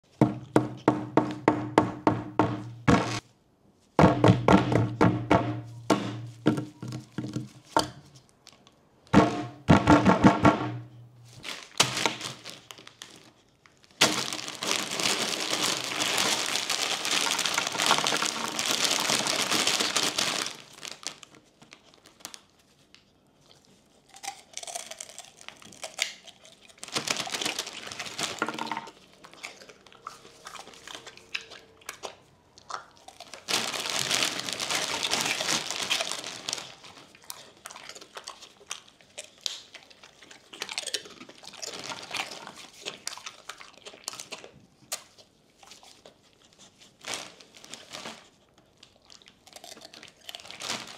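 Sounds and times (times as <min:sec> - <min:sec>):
plastic bag crinkling: 0:11.2 - 0:23.0, 0:24.1 - 0:32.1, 0:32.7 - 0:44.3, 0:46.5 - 0:50.9.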